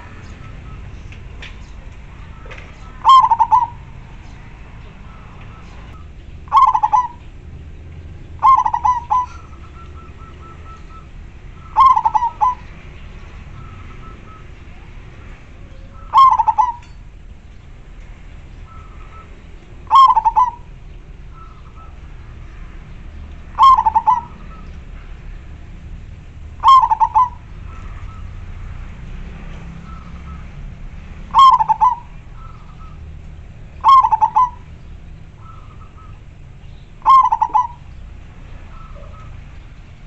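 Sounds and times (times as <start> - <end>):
dove cooing: 2.2 - 4.0, 5.1 - 7.3, 8.3 - 12.7, 15.6 - 17.0, 18.6 - 22.0, 23.5 - 24.7, 26.5 - 28.2, 31.3 - 33.0, 33.8 - 36.2, 36.9 - 37.9, 38.7 - 39.4.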